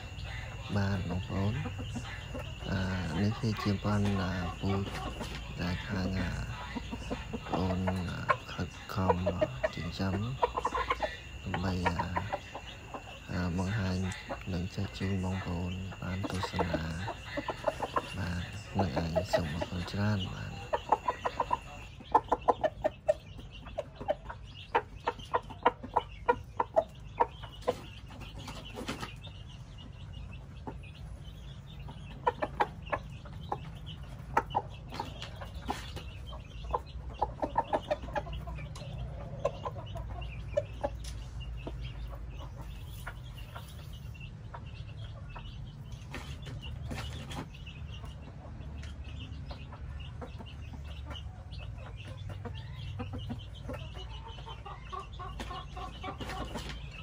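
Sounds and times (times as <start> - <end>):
rooster clucking: 0.0 - 29.2, 31.9 - 47.5.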